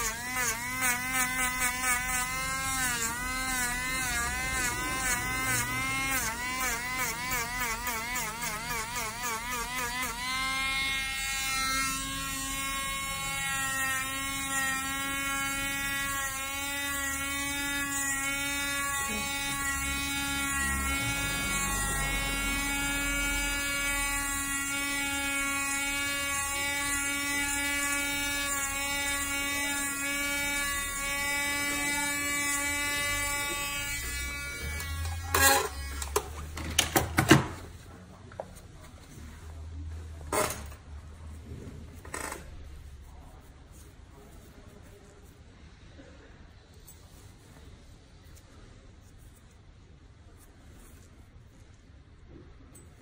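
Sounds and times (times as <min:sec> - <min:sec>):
electric nail drill whining: 0:00.0 - 0:36.2.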